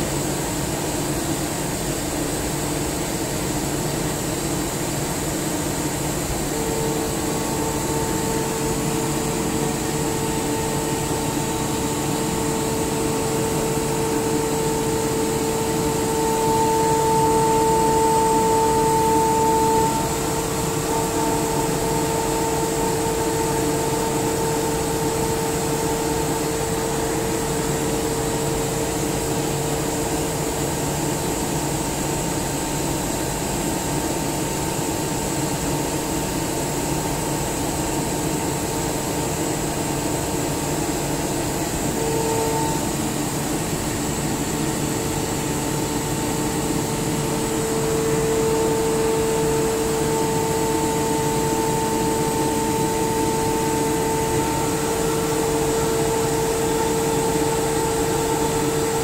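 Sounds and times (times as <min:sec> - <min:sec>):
air compressor humming: 0:00.0 - 0:59.0
humming tone: 0:06.2 - 0:30.6, 0:41.4 - 0:59.0.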